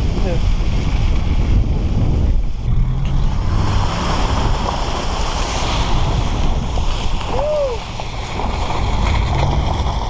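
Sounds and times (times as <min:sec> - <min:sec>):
truck engine rumble: 0:00.0 - 0:10.0
water and mud spraying off tyres: 0:00.0 - 0:10.0
wind buffeting microphone: 0:00.0 - 0:10.0.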